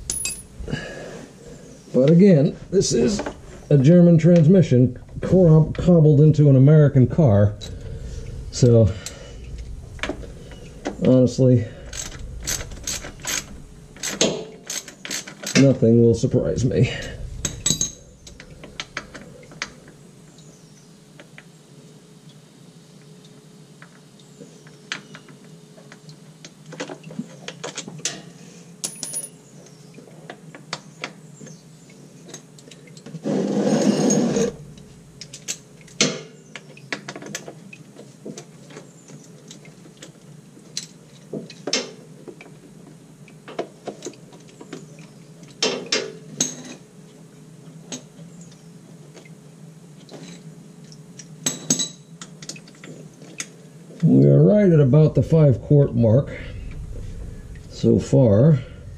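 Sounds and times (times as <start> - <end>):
rustling scrape: 7.2 - 14.9, 33.2 - 34.9.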